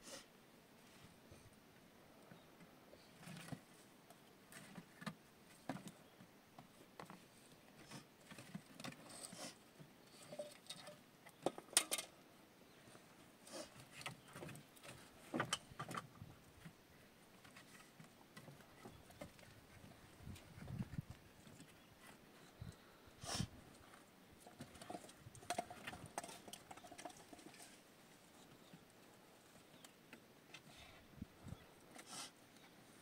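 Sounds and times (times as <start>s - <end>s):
wood knocking and scraping on stone: 24.5s - 27.8s.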